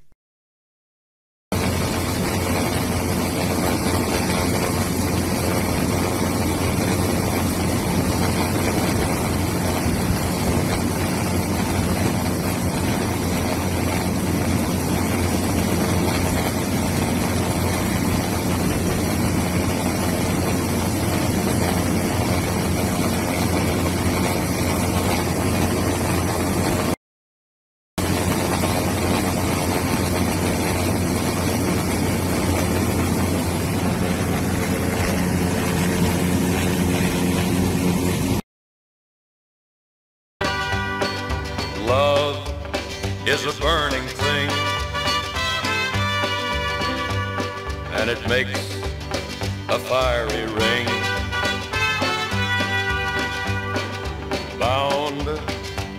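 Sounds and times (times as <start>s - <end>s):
aircraft engine and propeller drone: 1.5s - 27.0s, 28.0s - 38.4s, 40.4s - 55.9s
low hum: 1.6s - 27.0s, 28.0s - 38.4s.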